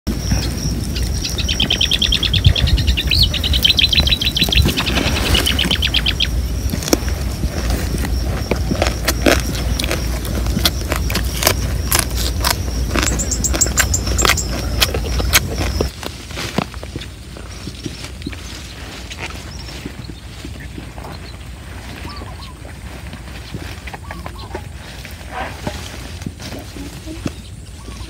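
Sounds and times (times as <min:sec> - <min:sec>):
wind rumble on microphone: 0:00.1 - 0:28.0
bird trilling high chirps: 0:00.2 - 0:06.8, 0:10.9 - 0:15.9, 0:24.0 - 0:24.7
clicks and smacks of eating: 0:06.7 - 0:18.5.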